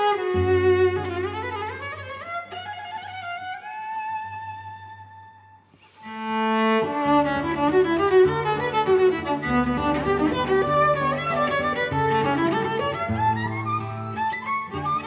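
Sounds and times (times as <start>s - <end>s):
cello playing slow melody: 0.0s - 15.0s
classical guitar low note: 7.1s - 15.0s.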